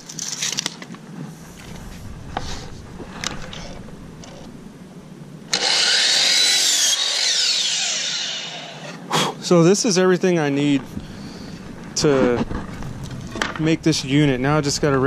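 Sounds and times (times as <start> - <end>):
miter saw whining: 5.5 - 9.0.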